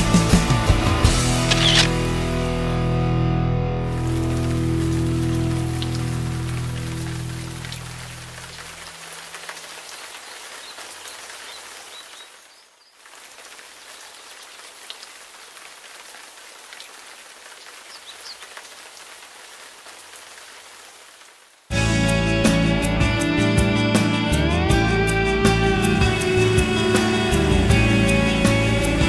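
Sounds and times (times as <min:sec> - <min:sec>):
background music: 0:00.0 - 0:08.5, 0:21.7 - 0:29.0
hiss of water: 0:03.8 - 0:21.5.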